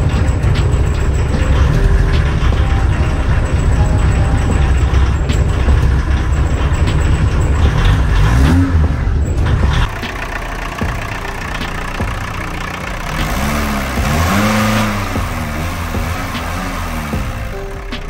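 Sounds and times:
diesel engine revving: 0:00.0 - 0:18.0.

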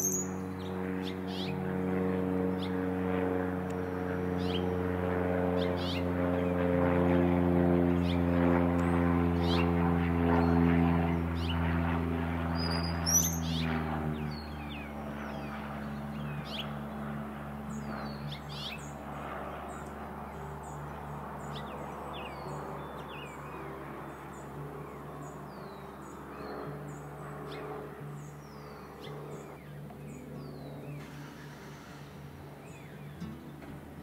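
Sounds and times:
small birds chirping: 0:00.0 - 0:01.7, 0:03.6 - 0:04.7, 0:05.5 - 0:06.7, 0:12.5 - 0:33.8
propeller airplane droning: 0:00.0 - 0:34.0.

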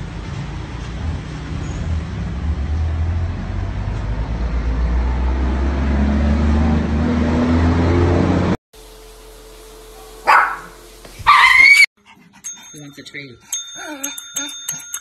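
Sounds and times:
road traffic: 0:00.0 - 0:10.9.

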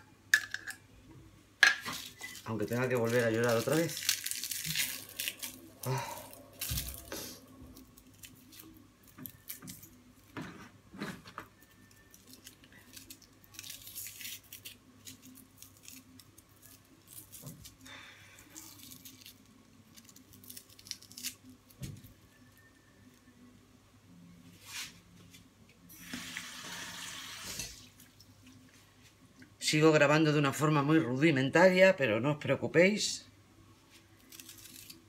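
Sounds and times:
rustling and tearing: 0:01.9 - 0:10.0, 0:11.6 - 0:17.8, 0:18.4 - 0:21.8, 0:33.9 - 0:35.0.

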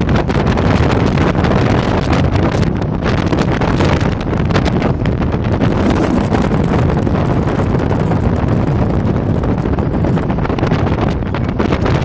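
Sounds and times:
boat engine: 0:00.0 - 0:12.0
water rushing past hull: 0:00.0 - 0:12.0
wind buffeting microphone: 0:00.0 - 0:12.0.

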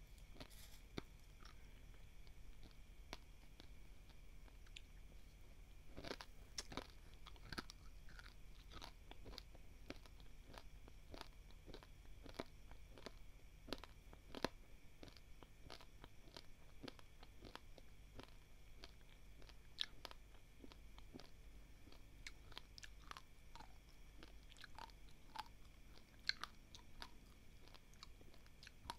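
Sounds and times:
person chewing crunchy rice: 0:00.3 - 0:05.0, 0:05.9 - 0:28.9.

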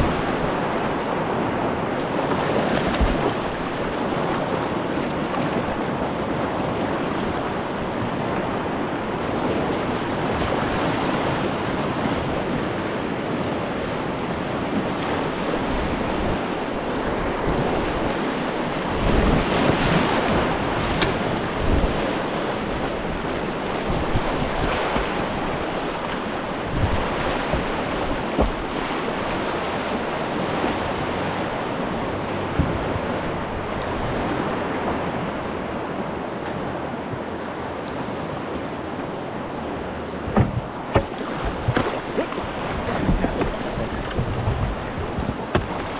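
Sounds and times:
wind buffeting microphone: 0:00.0 - 0:13.4, 0:14.1 - 0:37.5, 0:38.2 - 0:45.9
whitewater rapids rushing: 0:00.0 - 0:45.9
water splashing: 0:02.0 - 0:05.9, 0:22.8 - 0:34.2, 0:39.9 - 0:45.9.

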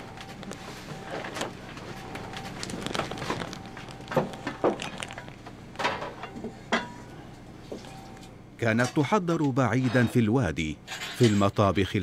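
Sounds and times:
faint steady hum: 0:00.0 - 0:12.0
metal pots and dishes clattering: 0:10.9 - 0:11.6.

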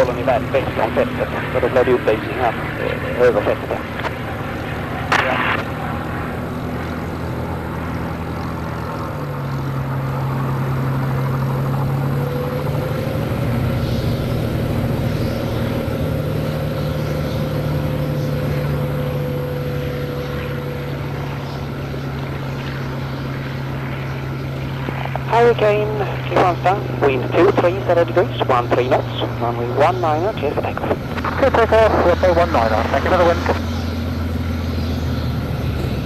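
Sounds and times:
aircraft engine running: 0:00.0 - 0:36.0.

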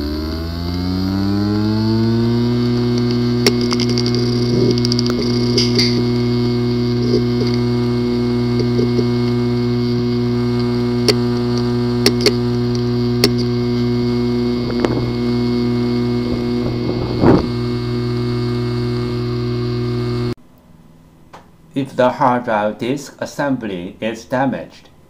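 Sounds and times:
hard drive hum: 0:00.0 - 0:20.4
hard drive clicking: 0:02.4 - 0:20.3.

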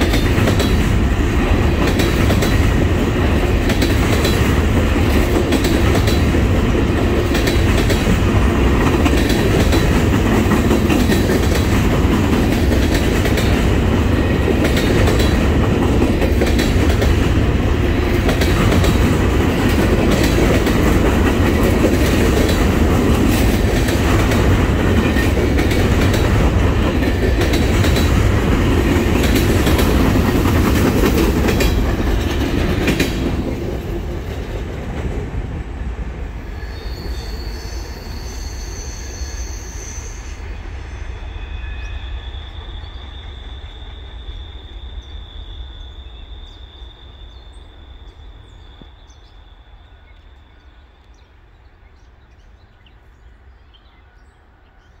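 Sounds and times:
freight train rumbling past: 0:00.0 - 0:55.0
high-pitched wheel squeal: 0:36.5 - 0:48.9.

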